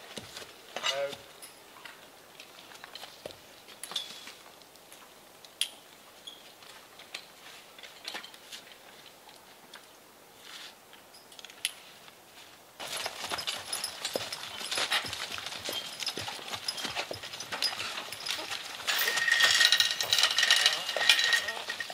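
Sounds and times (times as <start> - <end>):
harness chains clinking: 12.8 - 21.9.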